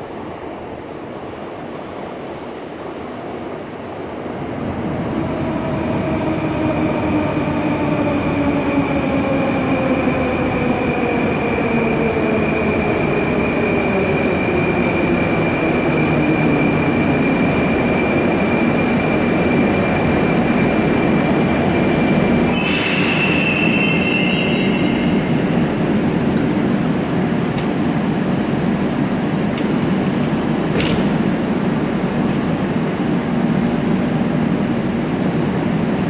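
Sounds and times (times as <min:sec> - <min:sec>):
train wheels rumbling on rail: 0:00.0 - 0:36.0
high brake squeal: 0:16.6 - 0:25.5.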